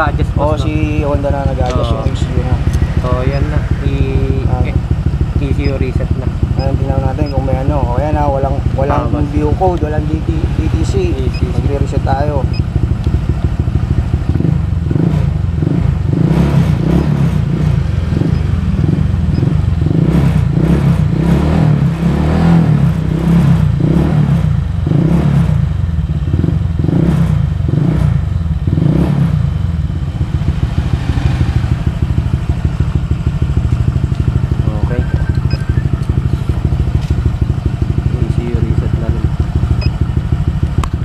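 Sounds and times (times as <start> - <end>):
scooter engine revving: 0.0 - 41.0.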